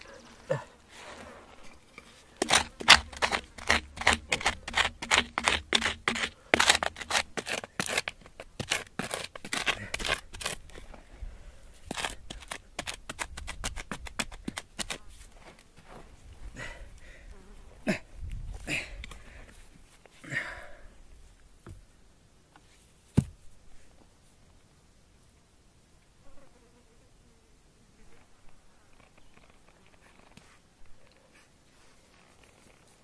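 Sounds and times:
digging stick striking gravelly soil: 0:00.0 - 0:10.8, 0:11.8 - 0:15.2.

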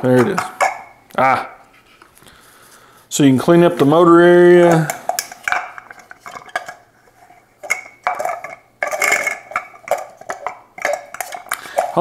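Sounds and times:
plastic parts clicking and knocking: 0:04.7 - 0:06.8, 0:07.6 - 0:12.0
plastic scraping rattles: 0:04.7 - 0:12.0.

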